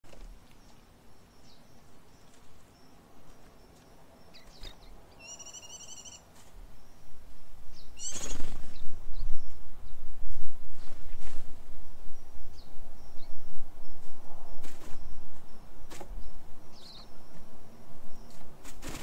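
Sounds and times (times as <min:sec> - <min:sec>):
small birds chirping: 0:00.1 - 0:10.1, 0:10.8 - 0:19.0
bird trilled call: 0:04.3 - 0:06.2, 0:08.0 - 0:08.4.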